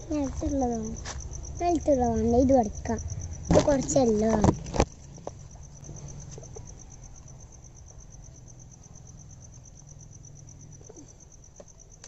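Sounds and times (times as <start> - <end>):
low steady rumble: 0.0 - 11.4
insect chirping: 0.0 - 12.0.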